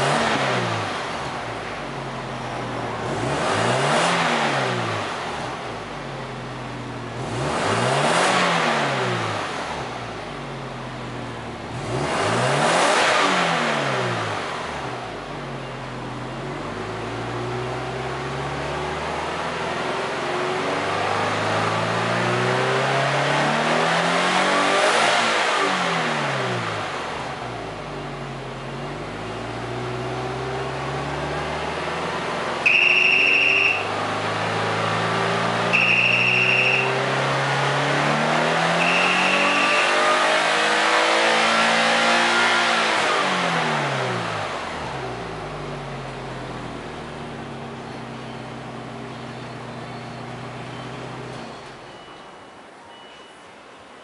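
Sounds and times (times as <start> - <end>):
car engine revving: 0.0 - 51.4
short high beeps: 32.7 - 33.8, 35.8 - 37.0, 38.8 - 39.5, 50.7 - 53.5.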